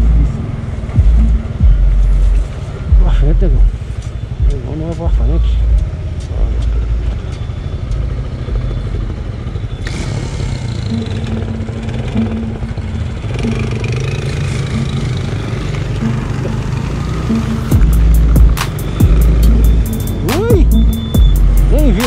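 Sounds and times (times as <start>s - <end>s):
road noise: 0.0s - 22.0s
traffic engine rumble: 0.0s - 22.0s.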